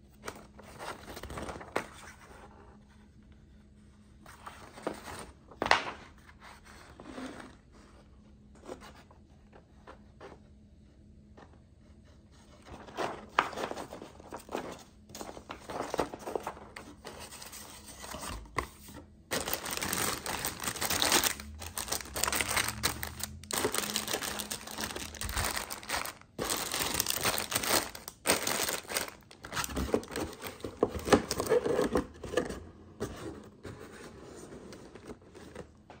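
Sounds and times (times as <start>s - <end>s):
plastic bags crinkling: 19.3s - 31.7s.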